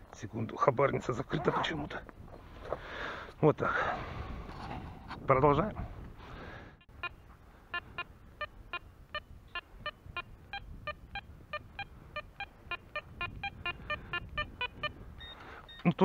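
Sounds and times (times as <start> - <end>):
metal detector beeping: 6.8 - 7.2, 7.8 - 16.0.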